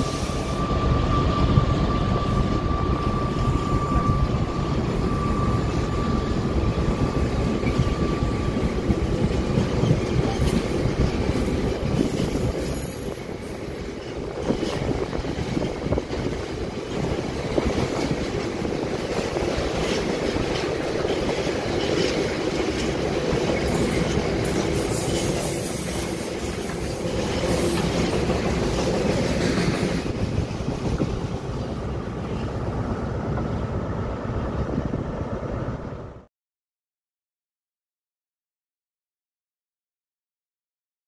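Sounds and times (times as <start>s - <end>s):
high-pitched wheel squeal: 0.0s - 14.8s, 23.6s - 28.4s
train rumbling along track: 0.0s - 36.3s.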